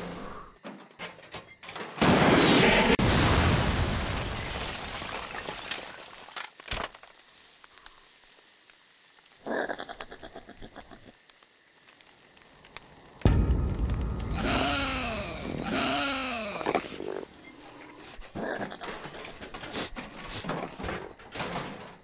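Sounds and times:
sharp thump: 13.3 - 14.8
explosion rumble: 13.3 - 15.8
sudden loud blast: 13.3 - 16.0
pulsing animal call: 14.3 - 17.0.

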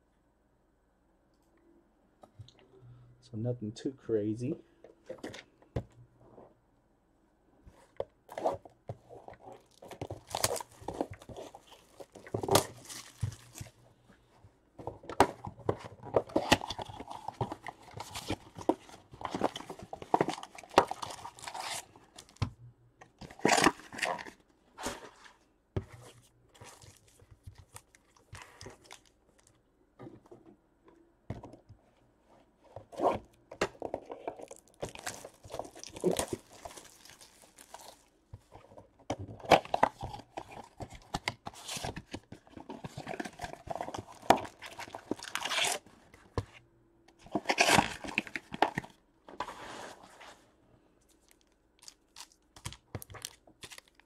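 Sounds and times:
wrapper tearing and rustling: 9.5 - 13.8, 16.2 - 22.0, 34.2 - 38.1, 42.9 - 45.9, 47.3 - 48.9, 51.1 - 54.0.

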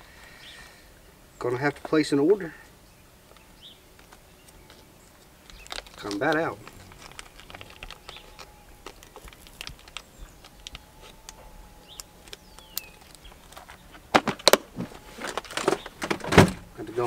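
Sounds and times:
plastic packet crinkling: 4.0 - 16.2.

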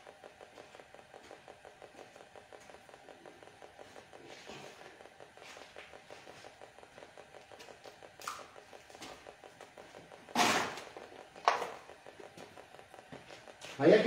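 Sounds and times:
footsteps scuffing on floor: 13.1 - 13.8.

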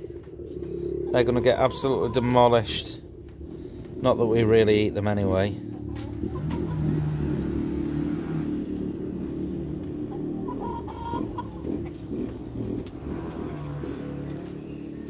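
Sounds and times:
chicken calls: 0.0 - 8.0, 8.6 - 15.0
steady low hum: 0.0 - 10.1
chickens clucking: 0.0 - 14.8.

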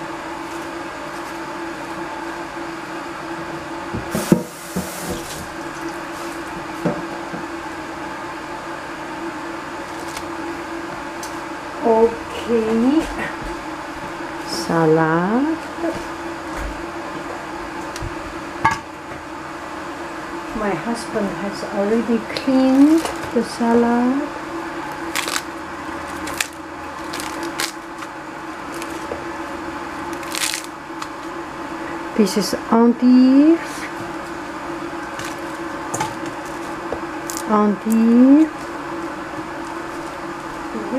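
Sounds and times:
kitchen appliance hum: 0.0 - 40.9
leaves tearing by hand: 9.8 - 10.4, 22.3 - 23.4, 24.8 - 29.2, 30.0 - 31.3, 35.0 - 38.5.

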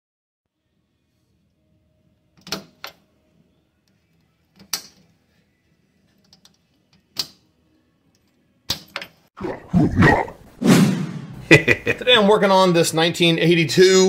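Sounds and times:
loud rushing noise: 10.5 - 11.6.

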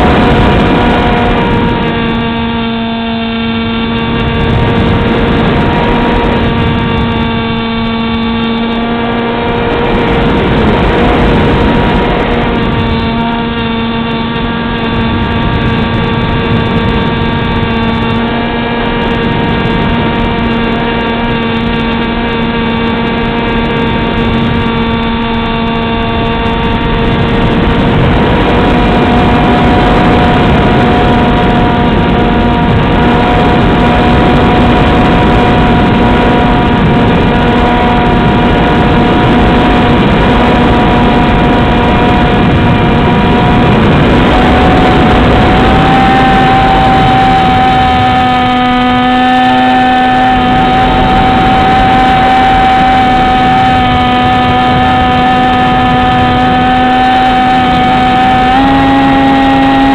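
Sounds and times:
electric motor and propeller whine: 0.0 - 59.9
rushing wind noise: 0.0 - 59.9.

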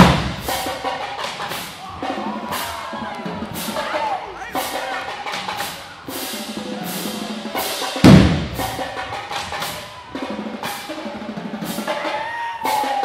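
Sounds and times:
snare drum strikes: 0.0 - 10.0
bass drum hit: 8.0 - 8.8.

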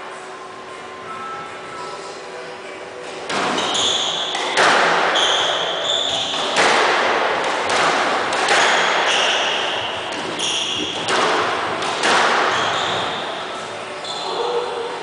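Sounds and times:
squash ball hitting rackets and walls: 3.2 - 13.5
shoes squeaking on wooden floor: 3.5 - 4.4, 5.0 - 6.6, 10.2 - 11.1, 12.4 - 13.4.

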